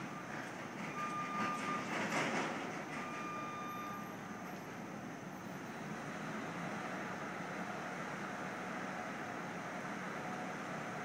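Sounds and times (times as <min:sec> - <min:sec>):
construction machinery rumbling: 0:00.0 - 0:11.0
warning beeps: 0:03.1 - 0:04.1.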